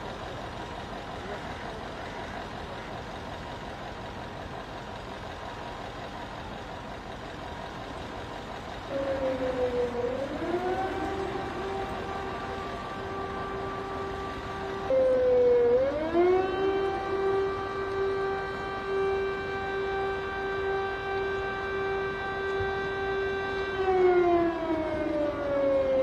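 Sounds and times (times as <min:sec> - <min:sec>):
vehicles: 0:00.0 - 0:26.0
siren: 0:07.6 - 0:26.0.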